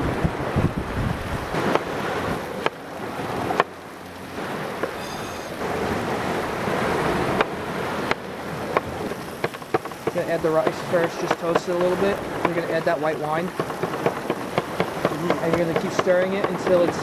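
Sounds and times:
wind noise on microphone: 0.0s - 3.7s
surf: 0.0s - 17.0s.

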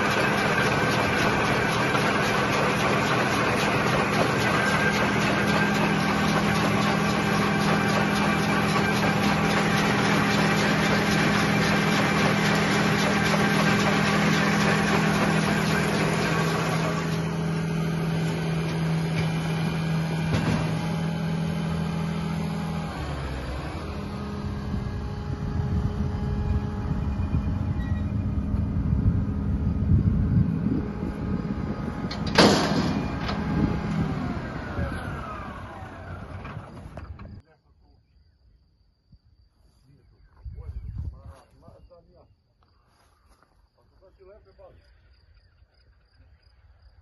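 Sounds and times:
baler machinery noise: 0.0s - 37.4s
tractor engine hum: 0.0s - 37.4s.

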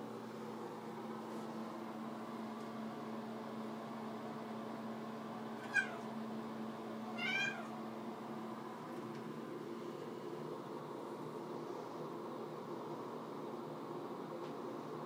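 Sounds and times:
cat meowing: 5.6s - 6.1s, 7.1s - 7.8s.

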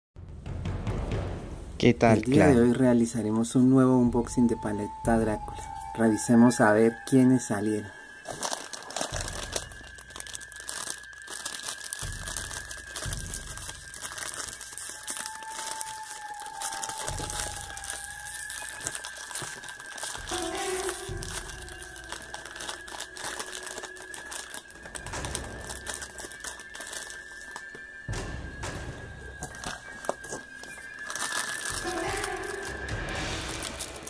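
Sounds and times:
faint steady high tone: 3.5s - 10.3s
plastic wrappers crinkling: 5.4s - 34.0s.

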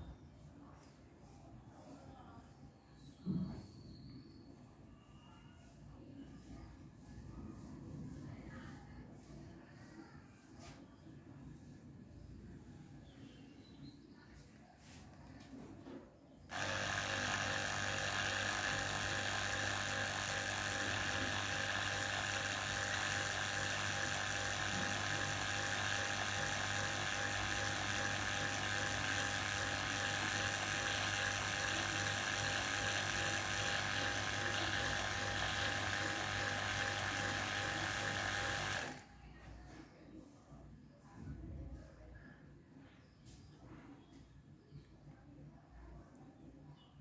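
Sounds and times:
electric pump motor hum: 16.5s - 39.1s.

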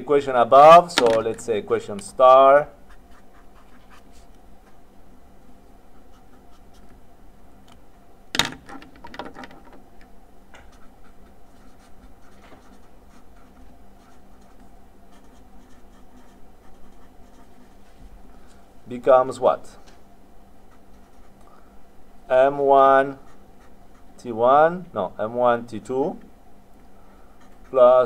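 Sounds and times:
marker squeaking on paper: 2.9s - 4.8s, 10.6s - 17.8s.

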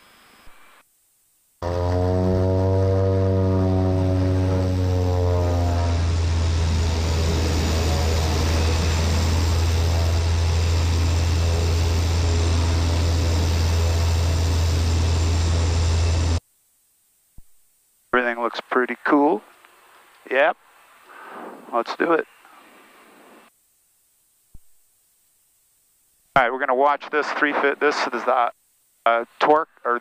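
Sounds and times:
turboprop engine droning: 1.6s - 16.4s
rushing noise: 4.0s - 16.4s.

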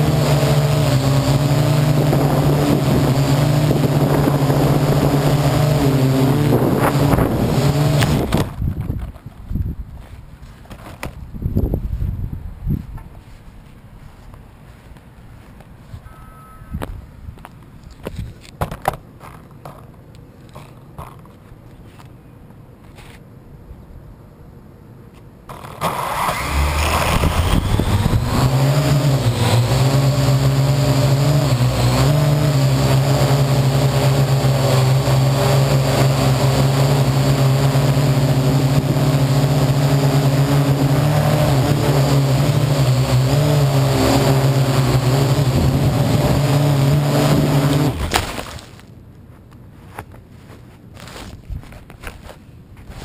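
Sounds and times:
drone rotor motors whining: 0.0s - 8.5s, 25.5s - 48.2s.

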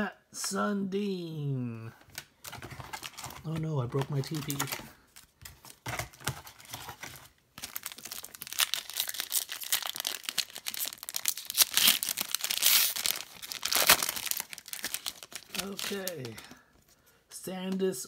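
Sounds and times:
foil wrapper crinkling and tearing: 2.5s - 16.6s.

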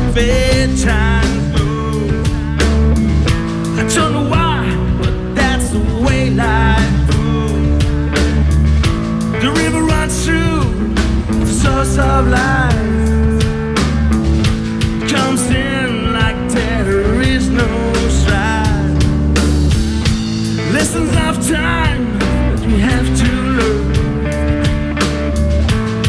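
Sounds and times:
bending sliding guitar lead: 0.0s - 26.0s
drum kit: 0.0s - 26.0s
electric guitars: 0.0s - 26.0s.

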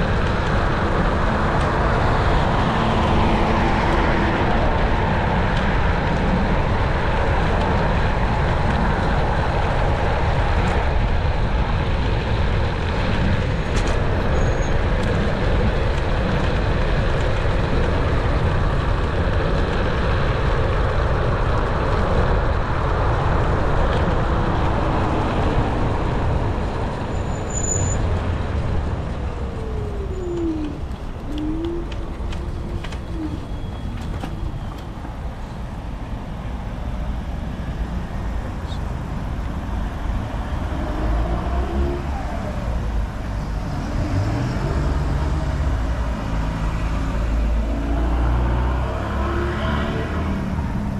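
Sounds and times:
road noise: 0.0s - 50.9s
rushing wind: 0.0s - 50.9s.

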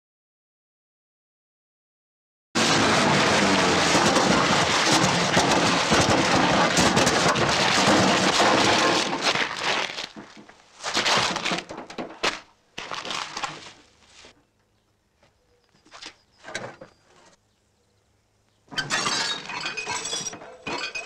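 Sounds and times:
car crashing metal crunching: 2.6s - 12.5s, 18.7s - 21.0s
wreck cracks and clatter: 2.6s - 13.6s.

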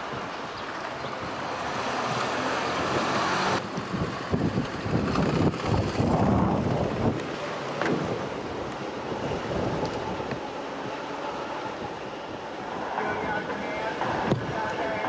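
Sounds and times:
car driving on street: 0.0s - 15.0s
wind buffeting microphone: 0.0s - 15.0s
gusty low rumble: 2.8s - 7.3s.

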